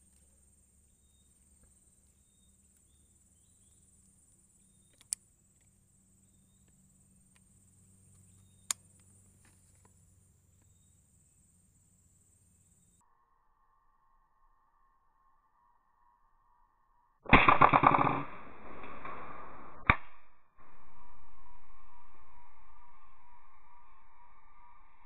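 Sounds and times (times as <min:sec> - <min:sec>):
high-pitched insect drone: 0:10.6 - 0:16.9.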